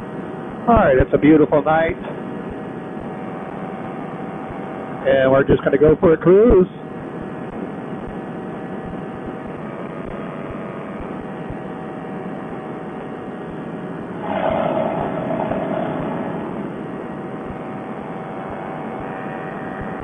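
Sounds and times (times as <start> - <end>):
paramotor engine and propeller drone: 9.7 - 20.0.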